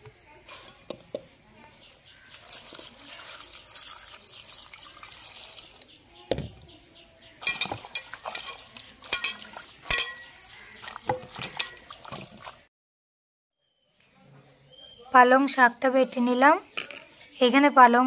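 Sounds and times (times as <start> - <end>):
water pouring into a pot: 1.9 - 6.2, 7.4 - 12.7
splashes and knocks on metal pot: 7.4 - 12.7.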